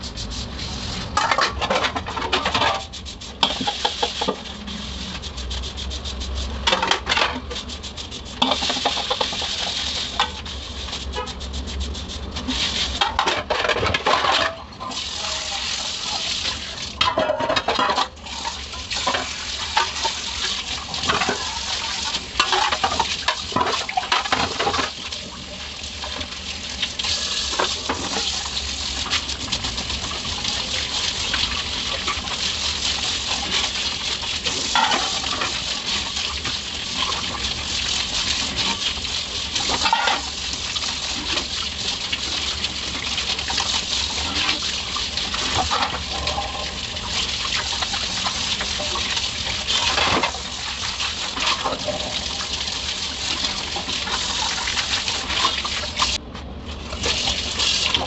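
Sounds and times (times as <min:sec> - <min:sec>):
scrubber rubbing on metal: 0:00.0 - 0:01.2, 0:02.5 - 0:13.1
tap water running: 0:00.0 - 0:56.2, 0:56.8 - 0:58.0.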